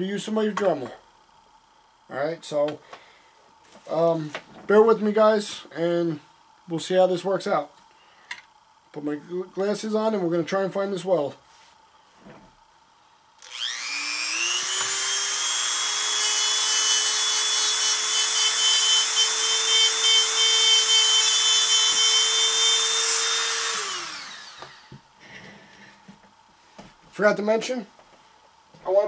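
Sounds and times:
rotary tool whining: 0:13.4 - 0:24.9.

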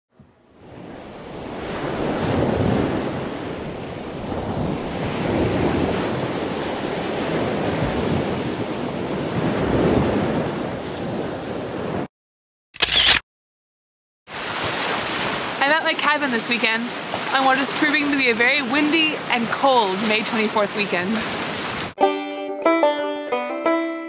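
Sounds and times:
wind rumbling on microphone: 0:00.2 - 0:12.1
choppy sea water washing: 0:00.5 - 0:12.1, 0:14.3 - 0:22.0.

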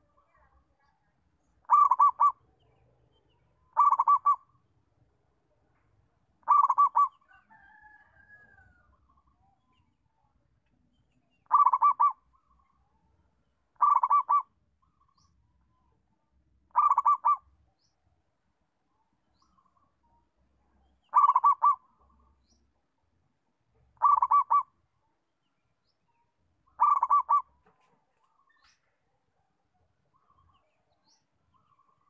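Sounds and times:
faint soft bird call: 0:00.0 - 0:04.6, 0:25.8 - 0:32.0
dove cooing: 0:01.6 - 0:02.4, 0:03.7 - 0:04.5, 0:06.4 - 0:07.2, 0:11.4 - 0:12.2, 0:13.8 - 0:14.5, 0:16.7 - 0:17.4, 0:21.1 - 0:21.8, 0:24.0 - 0:24.7, 0:26.8 - 0:28.0.

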